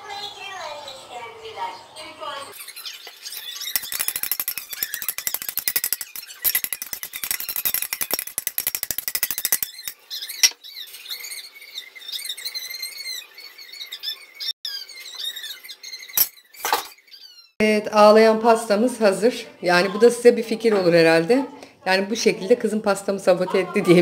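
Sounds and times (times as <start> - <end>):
spoon squeaking in glass dish: 2.6 - 11.5, 12.1 - 17.5
metal spoon scraping steel pot: 3.3 - 10.6.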